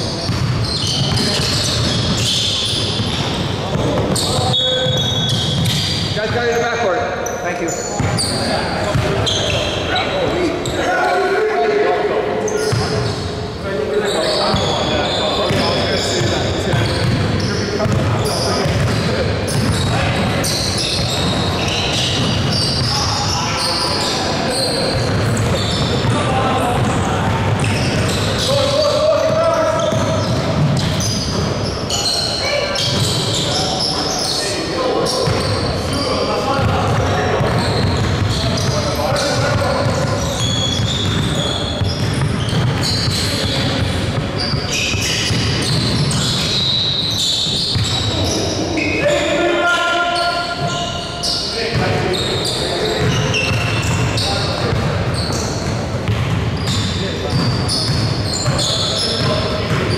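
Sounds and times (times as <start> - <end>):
shoe squeaks: 0.0 - 11.4, 12.4 - 59.9
basketball dribbling: 0.2 - 6.0, 8.9 - 9.6, 15.5 - 23.2, 24.9 - 31.5, 36.6 - 48.4, 53.0 - 59.9
basketball bouncing on hardwood: 39.5 - 43.9.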